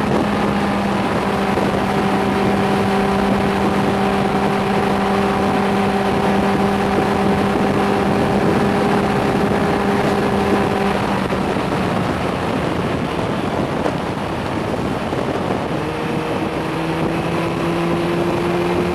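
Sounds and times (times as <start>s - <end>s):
motorcycle engine running: 0.0s - 18.9s
wind rushing over microphone: 0.0s - 18.9s.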